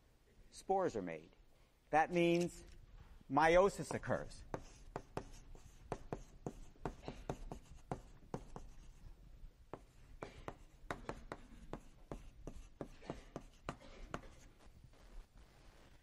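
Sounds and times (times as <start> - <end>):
writing taps and scratches on board: 3.8 - 9.0, 9.7 - 14.6.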